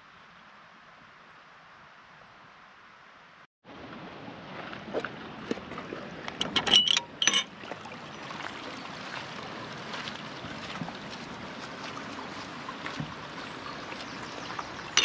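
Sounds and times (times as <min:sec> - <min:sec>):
river water rushing: 0:03.7 - 0:15.0.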